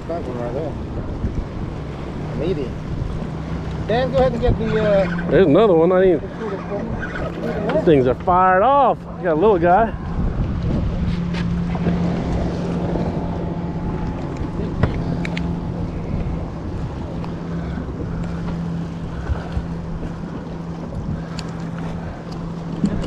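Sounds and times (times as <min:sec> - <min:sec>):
steady low hum: 0:00.0 - 0:23.0
water sloshing around boat: 0:00.0 - 0:23.0
wind on microphone: 0:00.6 - 0:23.0
light clicks: 0:14.0 - 0:15.5.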